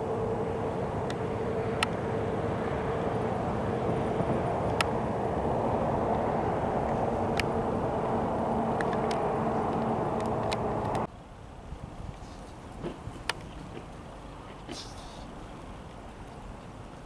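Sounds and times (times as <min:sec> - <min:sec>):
engine humming: 0:00.0 - 0:11.1.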